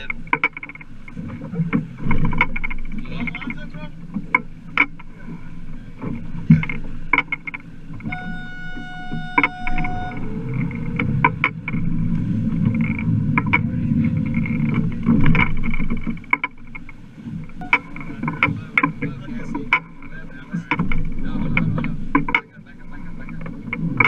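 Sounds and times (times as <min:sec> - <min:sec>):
water and wind against hull: 0:00.0 - 0:24.0
flat high tone: 0:08.0 - 0:11.4, 0:17.6 - 0:18.5.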